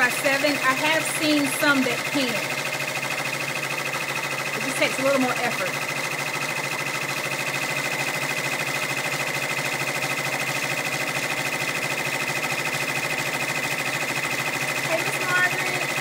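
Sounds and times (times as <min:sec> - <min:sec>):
embroidery machine stitching: 0:00.0 - 0:16.0.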